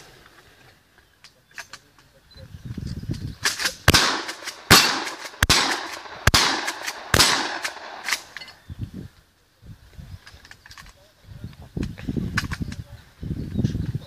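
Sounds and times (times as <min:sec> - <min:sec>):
faint gun handling sounds: 0:00.1 - 0:08.6, 0:09.9 - 0:12.9
shotgun shots with echo: 0:03.5 - 0:08.4.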